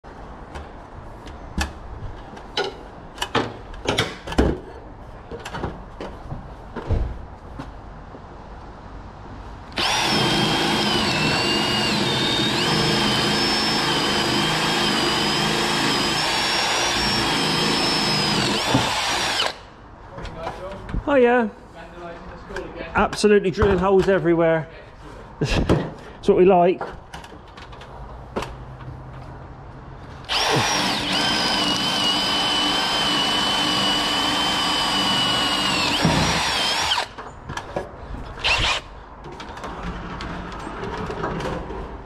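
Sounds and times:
cordless drill drilling: 0:09.8 - 0:19.7, 0:30.3 - 0:37.2, 0:38.4 - 0:38.9.

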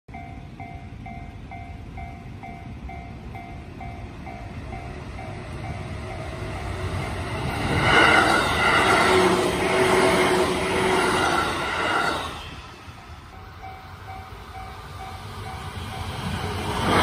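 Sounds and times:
electric train rumble: 0:00.1 - 0:17.0
level-crossing bell clanging: 0:12.8 - 0:17.0.

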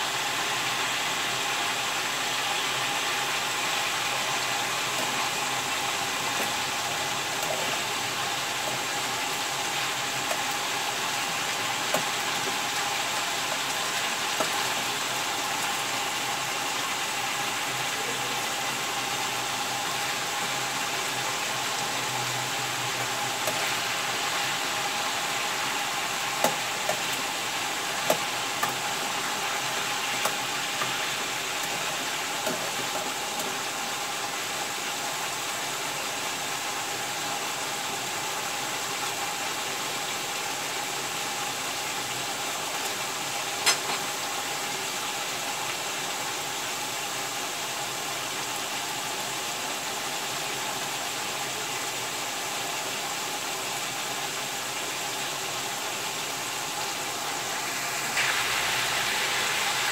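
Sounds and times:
chicken sizzling in a pan: 0:00.0 - 0:49.2, 0:51.0 - 0:59.9
spatula tapping a pan: 0:28.1 - 0:28.8.

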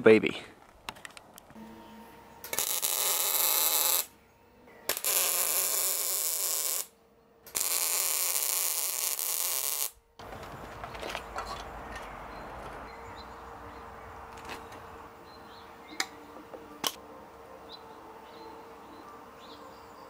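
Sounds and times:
electric arc welding crackling hiss: 0:02.4 - 0:04.1, 0:04.9 - 0:06.9, 0:07.5 - 0:10.0.

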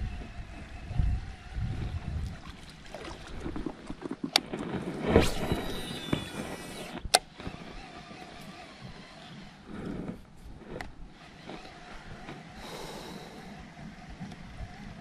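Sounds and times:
reel spool whirring: 0:00.0 - 0:15.0
fishing rod swish: 0:04.9 - 0:06.9.

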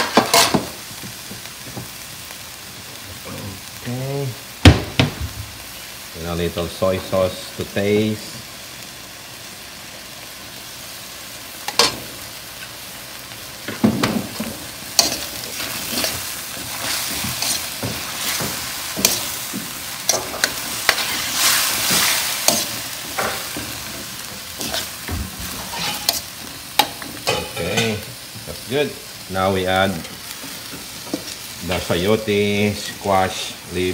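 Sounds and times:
food sizzling in a wok: 0:00.0 - 0:33.9
metal spoon scraping a pan: 0:14.3 - 0:28.0.

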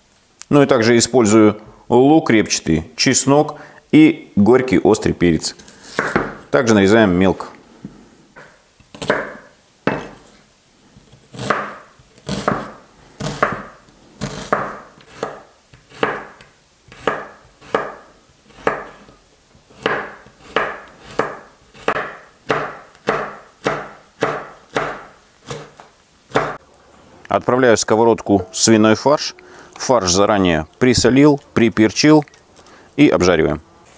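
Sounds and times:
knife chopping on wooden board: 0:05.9 - 0:06.4, 0:08.4 - 0:10.2, 0:11.3 - 0:19.1, 0:19.7 - 0:26.6.

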